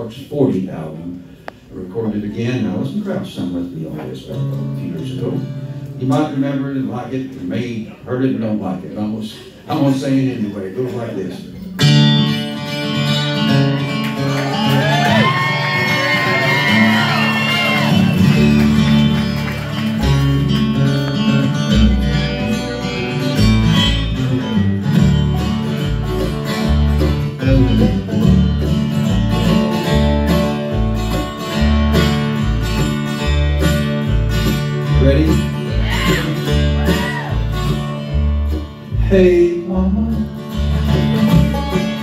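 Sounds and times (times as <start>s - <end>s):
bluegrass band playing: 0.0s - 42.0s
sliding fiddle notes: 11.8s - 42.0s
upright bass beat: 17.8s - 42.0s.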